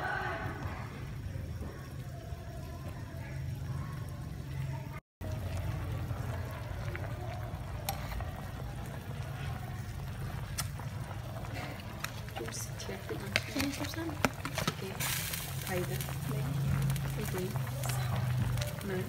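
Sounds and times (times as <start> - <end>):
soup boiling in metal pot: 0.0 - 19.0.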